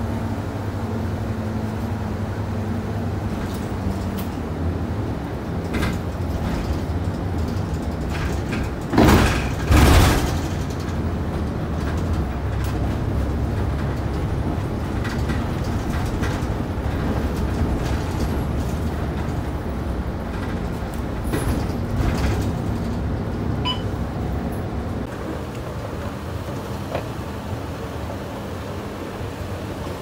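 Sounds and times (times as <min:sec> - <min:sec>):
bus engine and road rumble: 0:00.0 - 0:30.0
short beep: 0:23.6 - 0:24.0.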